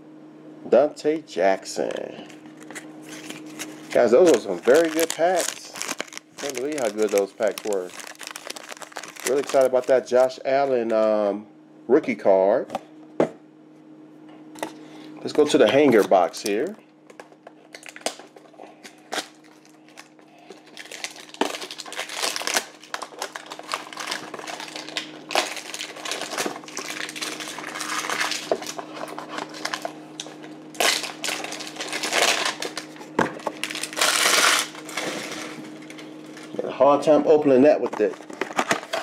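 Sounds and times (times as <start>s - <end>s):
plastic shrink wrap crinkling: 1.8s - 10.4s, 15.3s - 36.7s, 37.8s - 39.0s.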